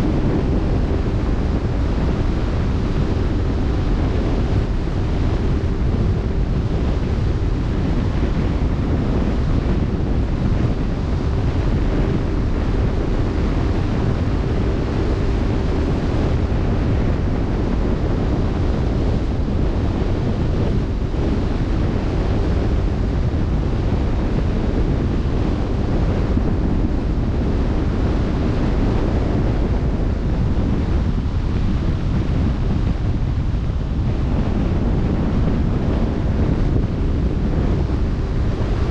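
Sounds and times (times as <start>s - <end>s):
faint steady hum: 0.0s - 38.9s
wind buffeting microphone: 0.0s - 38.9s.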